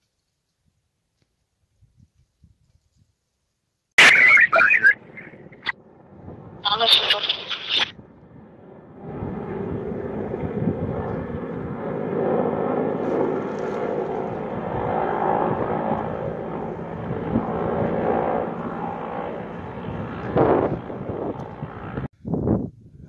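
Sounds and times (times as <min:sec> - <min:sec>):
helicopter engine and rotor: 0:04.0 - 0:22.1.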